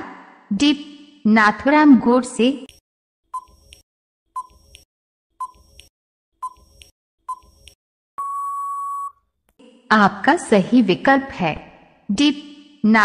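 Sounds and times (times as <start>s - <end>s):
long steady beep: 8.2s - 9.2s.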